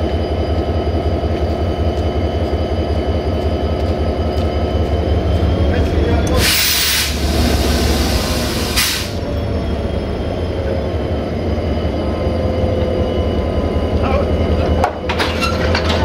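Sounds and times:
diesel locomotive idling: 0.0s - 16.0s
air hiss bursts: 6.4s - 9.2s.

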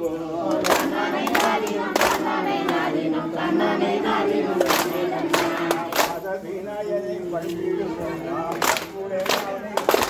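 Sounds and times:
voices singing a folk song: 0.0s - 10.0s
sharp hand claps: 0.5s - 2.9s, 4.6s - 6.3s, 8.5s - 10.0s.

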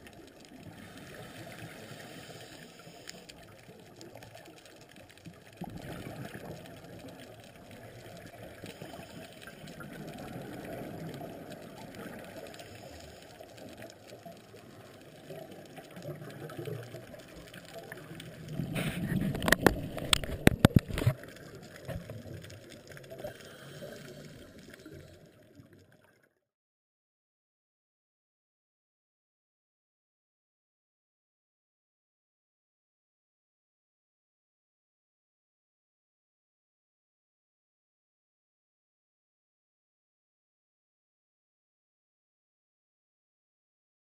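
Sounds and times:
underwater regulator exhaust bubbles: 0.0s - 26.1s.

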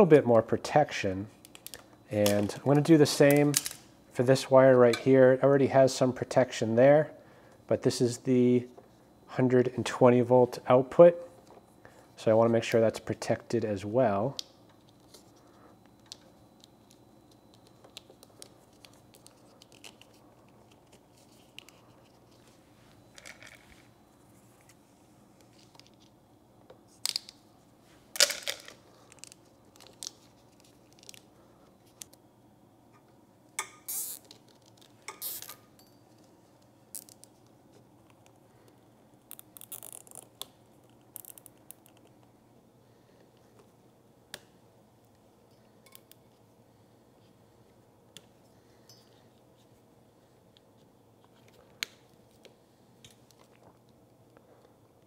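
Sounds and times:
faint steady hum: 0.0s - 55.0s
plastic clicks and rustles of wiring: 1.4s - 2.6s, 15.9s - 22.4s, 25.4s - 27.4s, 28.2s - 32.2s, 34.2s - 35.5s, 36.1s - 42.3s.

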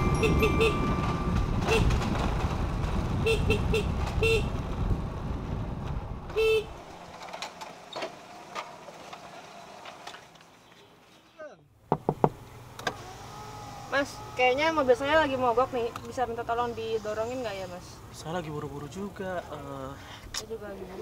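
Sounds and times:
vehicle horn honking: 0.0s - 1.0s, 1.6s - 2.0s, 3.2s - 4.5s, 6.3s - 6.8s
low engine rumble: 0.0s - 9.8s
faint knocks: 11.9s - 12.4s.

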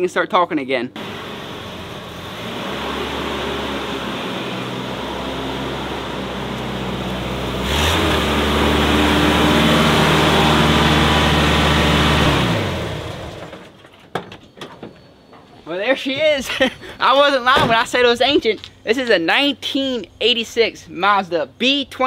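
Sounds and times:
pickup truck engine running: 1.0s - 13.6s.

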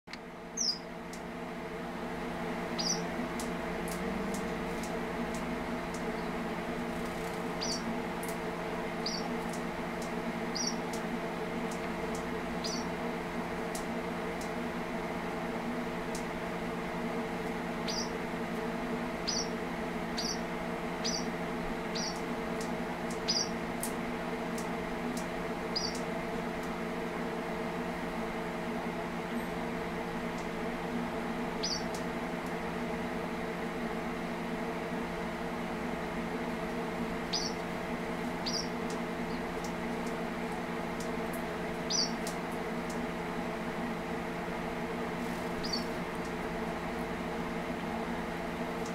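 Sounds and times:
steady low hum: 0.1s - 48.9s
finch chirping: 0.6s - 0.9s, 2.7s - 3.1s, 7.6s - 7.9s, 9.0s - 9.3s, 10.5s - 11.0s, 12.6s - 12.9s, 17.8s - 18.2s, 19.2s - 19.6s, 20.2s - 21.3s, 21.9s - 22.2s, 23.2s - 23.6s, 25.7s - 26.0s, 31.6s - 32.0s, 37.3s - 37.6s, 38.4s - 39.4s, 41.9s - 42.2s, 45.6s - 46.0s.

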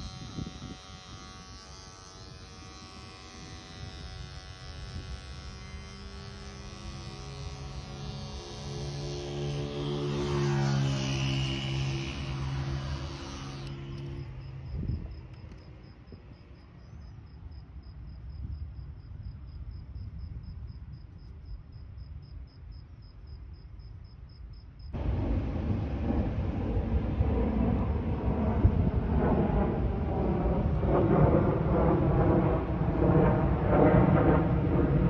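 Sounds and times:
electric hair clipper humming: 0.0s - 10.1s, 11.5s - 14.2s
wind and traffic noise: 0.0s - 35.0s
faint outdoor rumble: 24.8s - 35.0s.

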